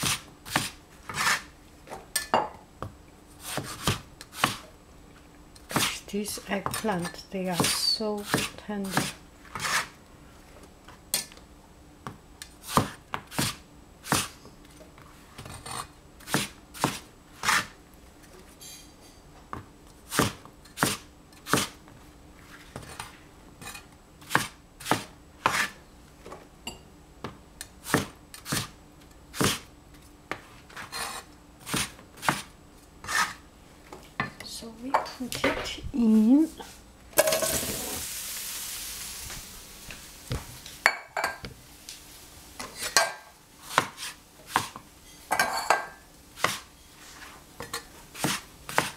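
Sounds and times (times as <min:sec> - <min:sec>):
cleaver chopping on cutting board: 0:03.4 - 0:04.6, 0:07.6 - 0:09.8, 0:12.7 - 0:14.3, 0:16.3 - 0:17.7, 0:20.1 - 0:21.7, 0:24.3 - 0:25.7, 0:27.9 - 0:28.7, 0:31.7 - 0:32.5, 0:43.7 - 0:44.8, 0:46.4 - 0:46.6, 0:48.2 - 0:48.9.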